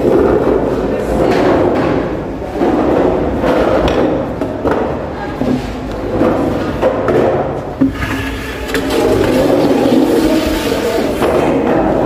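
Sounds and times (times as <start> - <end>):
metal desks scraping across floor: 7.8 - 12.0.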